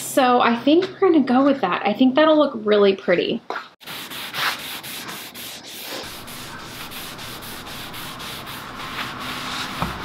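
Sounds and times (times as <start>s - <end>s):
cloth rag wiping wood: 3.8s - 10.0s.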